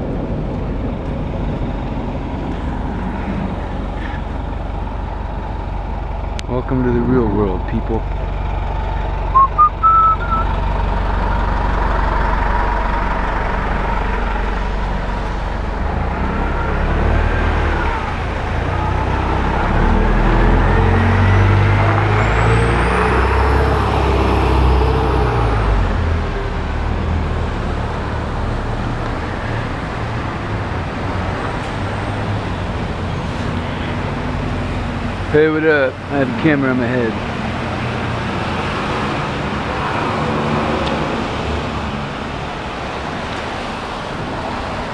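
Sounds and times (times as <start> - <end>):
road traffic: 0.0 - 44.9
short rising beeps: 9.4 - 10.5.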